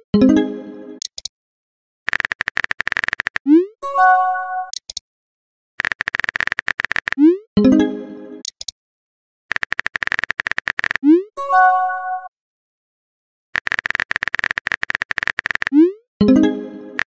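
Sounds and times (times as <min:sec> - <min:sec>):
message chime: 0:16.2 - 0:17.0.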